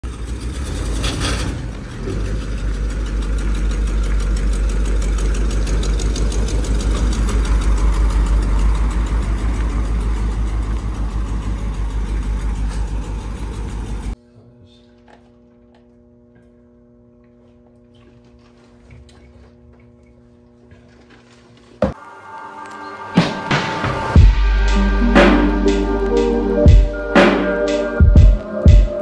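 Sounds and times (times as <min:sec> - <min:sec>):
vehicle engine idling: 0:00.0 - 0:14.2.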